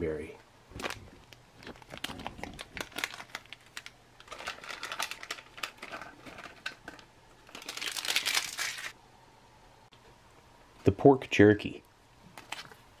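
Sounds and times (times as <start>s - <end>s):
plastic pouch crinkling: 0.7s - 9.0s.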